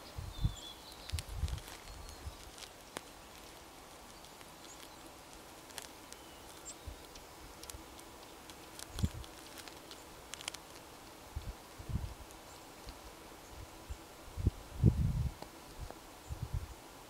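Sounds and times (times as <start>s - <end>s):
faint high bird chirps: 0.0s - 3.2s
small clicks and ticks: 0.8s - 13.2s.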